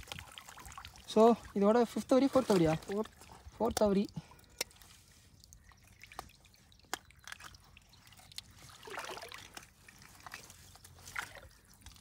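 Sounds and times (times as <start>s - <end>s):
water dripping and sloshing: 0.0s - 12.0s.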